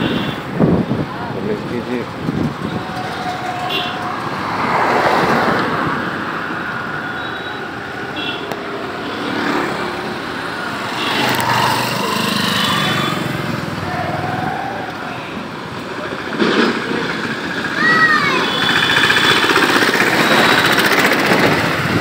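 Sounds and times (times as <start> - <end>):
road and wind noise: 0.0 - 22.0
motorbike engines running: 7.7 - 22.0.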